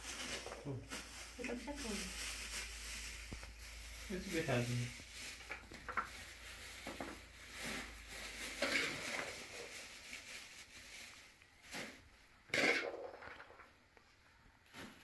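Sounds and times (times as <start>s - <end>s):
beans rattling into plastic bag: 0.0s - 12.0s.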